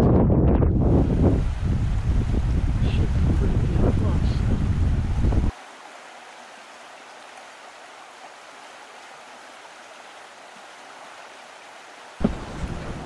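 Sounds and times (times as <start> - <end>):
wind noise on microphone: 0.0 - 5.5, 12.2 - 13.0
stream rushing over rocks: 0.8 - 13.0.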